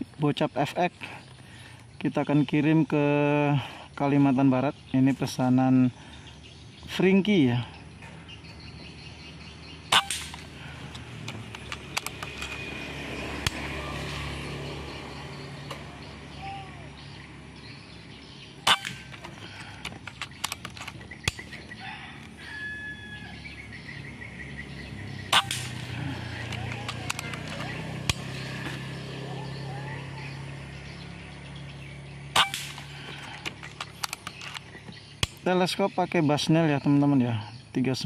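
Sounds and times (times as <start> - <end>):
air rifle shots: 9.9 - 12.6, 18.6 - 21.7, 25.2 - 28.6, 32.3 - 35.5.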